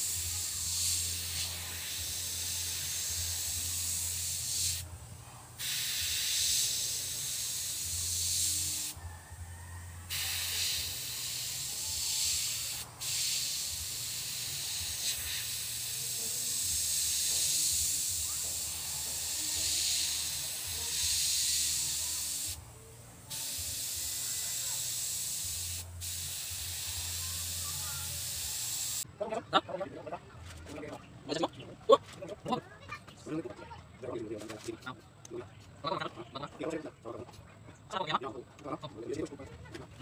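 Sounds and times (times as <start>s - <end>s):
airbrush hissing: 0.0s - 4.9s, 5.5s - 9.0s, 9.9s - 29.0s.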